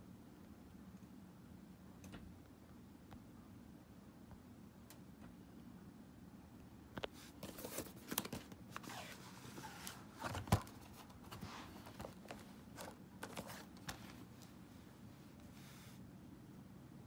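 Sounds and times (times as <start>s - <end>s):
plastic cases clicking and scraping: 7.0s - 14.6s.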